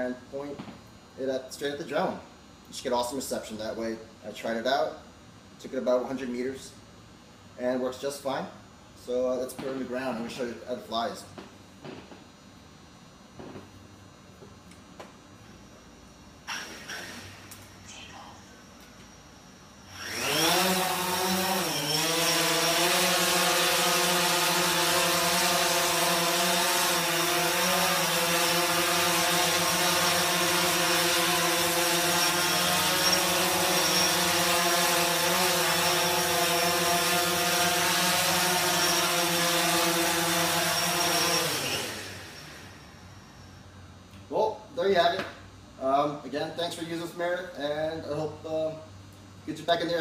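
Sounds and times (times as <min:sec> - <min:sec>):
drone propellers buzzing: 0:19.8 - 0:42.6.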